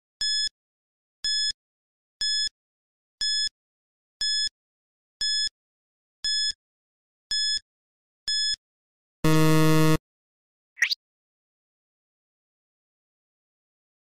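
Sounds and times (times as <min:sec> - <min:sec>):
low buzzer: 0:09.2 - 0:10.0.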